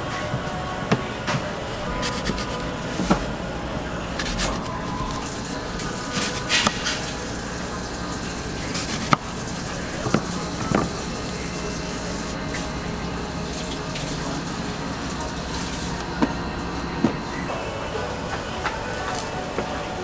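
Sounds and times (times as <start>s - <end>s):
knife slicing apple: 2.0s - 3.1s.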